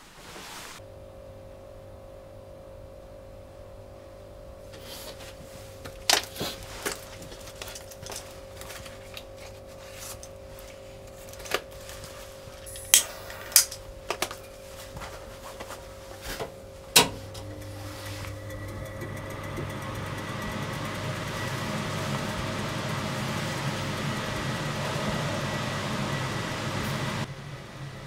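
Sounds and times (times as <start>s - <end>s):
steady low hum: 0.8s - 28.0s
small objects clicking and knocking: 5.9s - 10.3s.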